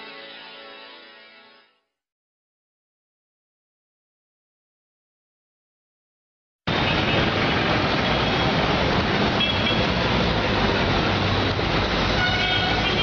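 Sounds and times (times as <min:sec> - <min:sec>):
street traffic noise: 0:06.7 - 0:13.0.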